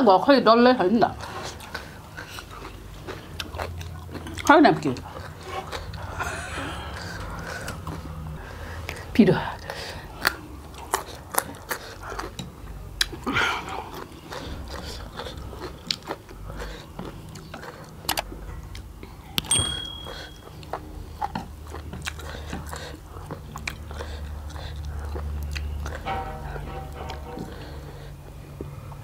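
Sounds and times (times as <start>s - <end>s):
wet chewing: 1.2s - 6.2s, 8.9s - 19.4s, 20.1s - 26.1s
brief high ring: 19.5s - 20.5s, 26.1s - 27.6s.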